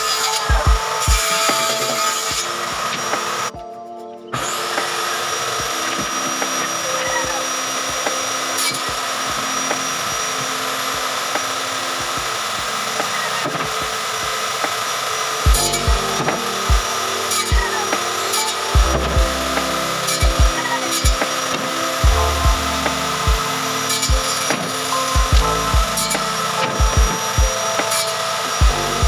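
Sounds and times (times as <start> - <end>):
table saw ripping wood: 22.9 - 25.2.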